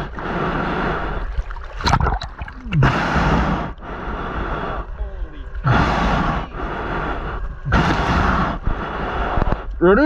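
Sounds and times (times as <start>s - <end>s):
water sloshing and gurgling: 0.0s - 9.7s.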